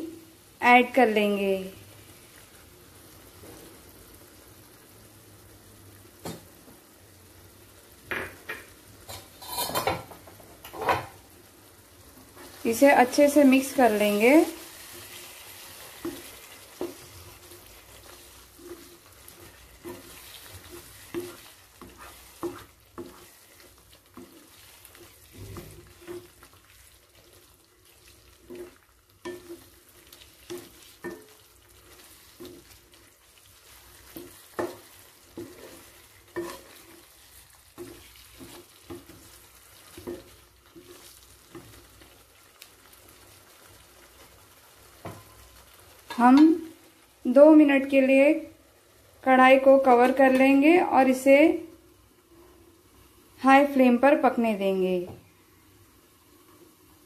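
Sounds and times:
curry sizzling: 0.0 - 57.0
spatula scraping a pan: 9.1 - 10.2, 12.4 - 42.2.

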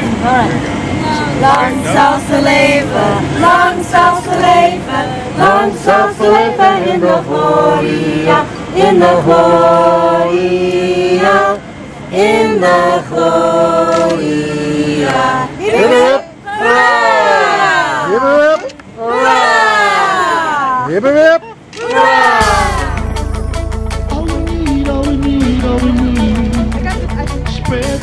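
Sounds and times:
group of people singing: 0.0 - 18.0, 21.9 - 23.4, 24.0 - 26.8.

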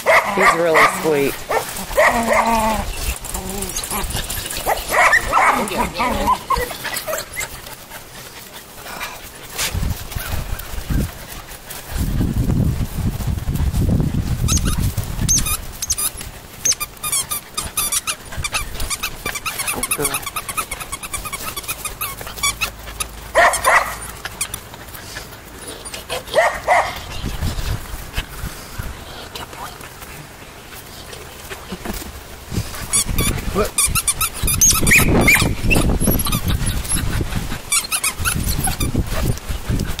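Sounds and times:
low rustling noise: 0.0 - 40.0
scuffling and handling: 0.1 - 40.0
squeaky dog toy: 14.5 - 22.7, 32.9 - 37.1, 37.7 - 39.0.

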